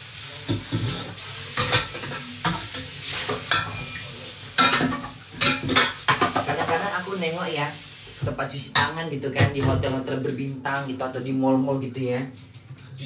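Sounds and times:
steady hiss: 0:00.0 - 0:06.1.

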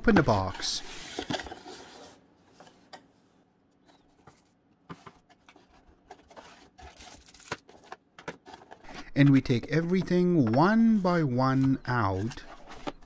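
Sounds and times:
cardboard rustle: 0:04.1 - 0:13.0.

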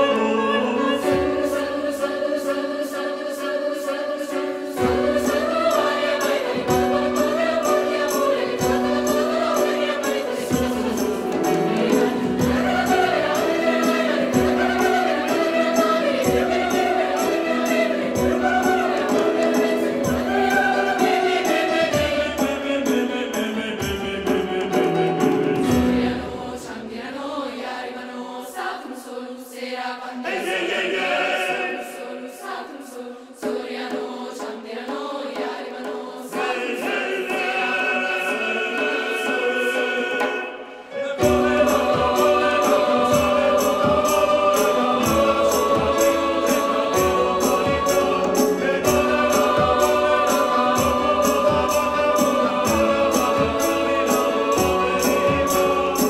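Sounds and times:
children's choir singing: 0:00.0 - 0:56.0
bass and percussion accompaniment: 0:04.8 - 0:26.6, 0:41.2 - 0:56.0.

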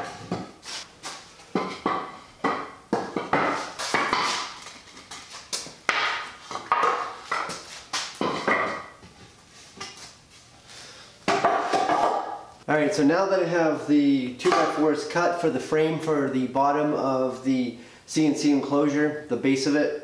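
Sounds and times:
wooden boards knocking on concrete: 0:01.5 - 0:04.6, 0:05.9 - 0:08.9, 0:11.3 - 0:12.4.

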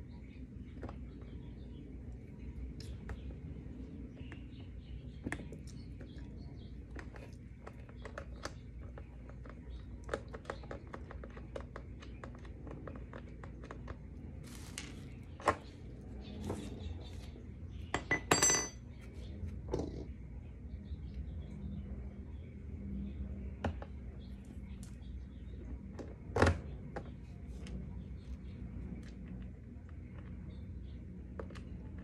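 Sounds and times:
sharp ringing metallic clink: 0:18.0 - 0:18.8.

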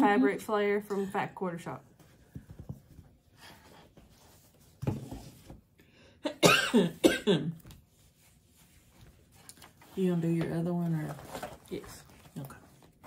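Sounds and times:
woman coughing: 0:06.2 - 0:07.6.

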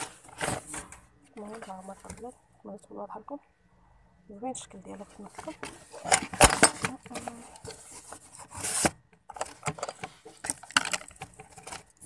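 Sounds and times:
rubbing and scraping handling noise: 0:00.0 - 0:02.4, 0:04.8 - 0:12.0.

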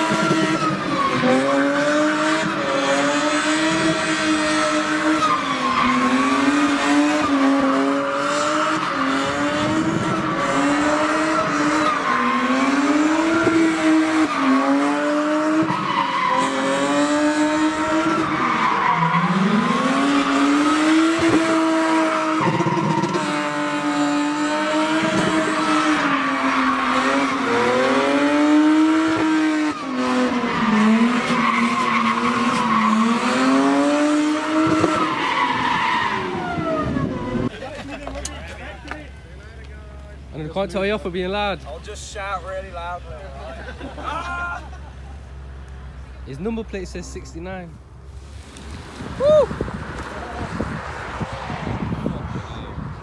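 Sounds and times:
car engine revving hard: 0:00.0 - 0:37.5
tyres squealing on tarmac: 0:04.7 - 0:07.5, 0:08.2 - 0:15.0, 0:15.6 - 0:17.0, 0:17.6 - 0:19.5, 0:25.3 - 0:27.8, 0:30.3 - 0:33.6, 0:34.9 - 0:38.8.

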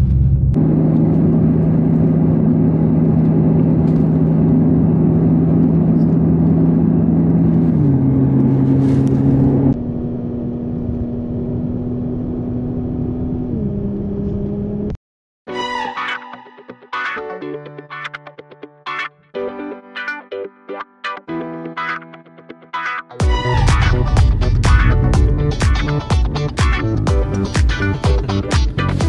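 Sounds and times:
car engine running: 0:00.0 - 0:14.9, 0:23.2 - 0:29.0
road noise: 0:00.0 - 0:15.0, 0:23.2 - 0:29.0.

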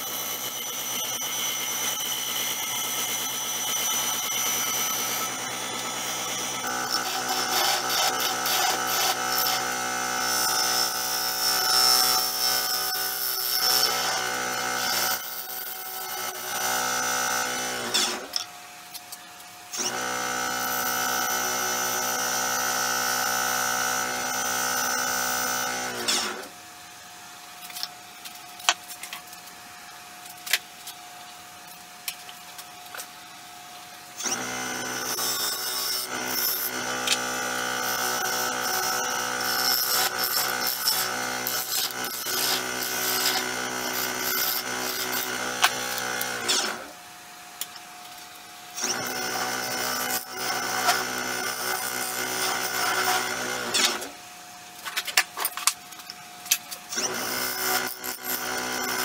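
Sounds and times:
wood lathe spinning: 0:04.0 - 0:17.6, 0:34.2 - 0:46.7
gouge cutting wood: 0:06.4 - 0:09.8, 0:34.4 - 0:46.6.

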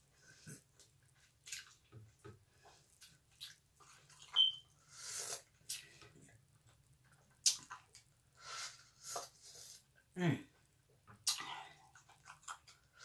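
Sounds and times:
person chewing: 0:00.3 - 0:02.2, 0:02.9 - 0:09.8, 0:11.2 - 0:13.0
brief high squeak: 0:04.4 - 0:04.6.

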